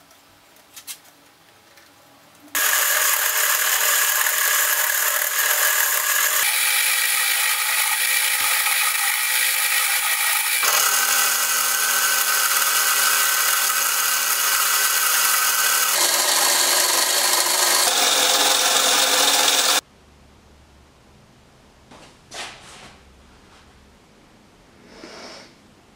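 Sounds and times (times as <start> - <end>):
tool scraping turning wood: 2.6 - 19.8
wood lathe motor: 2.6 - 19.8.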